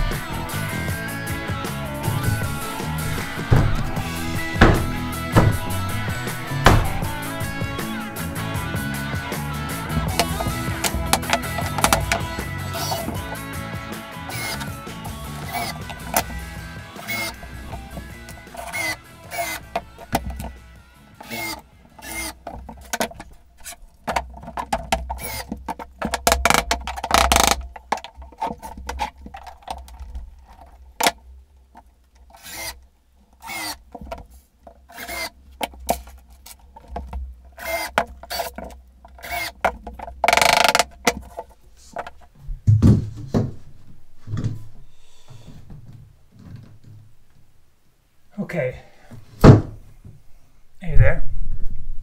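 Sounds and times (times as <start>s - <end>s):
cordless drill driving screws: 1.8s - 13.6s, 14.2s - 20.6s, 21.2s - 22.6s, 25.1s - 25.6s, 26.4s - 27.6s, 32.3s - 32.8s, 33.4s - 33.8s, 34.9s - 35.4s, 37.6s - 39.7s, 40.3s - 40.8s
boards and tools clattering on floor: 2.0s - 8.5s, 9.8s - 13.5s, 17.1s - 20.6s, 22.4s - 31.2s, 37.9s - 47.0s.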